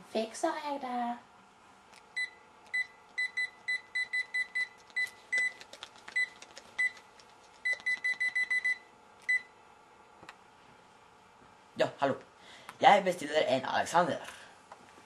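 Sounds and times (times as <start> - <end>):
phone keypad beeping: 7.6 - 9.5.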